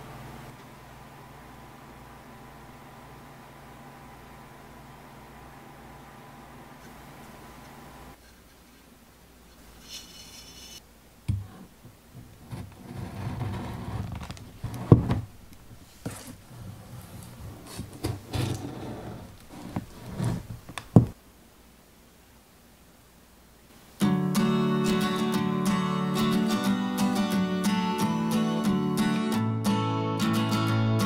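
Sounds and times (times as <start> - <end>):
rubbing and scraping: 9.5 - 10.8, 11.4 - 21.1.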